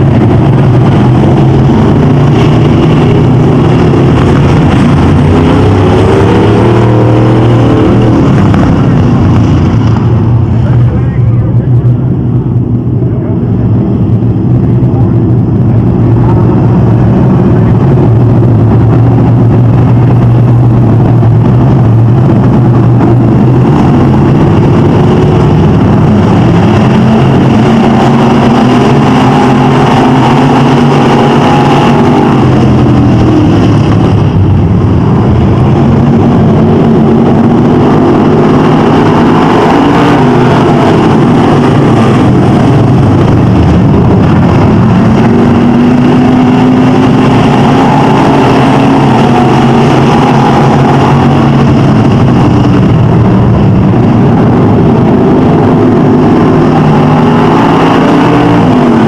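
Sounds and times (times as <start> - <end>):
racing car engines: 0.0 - 59.0.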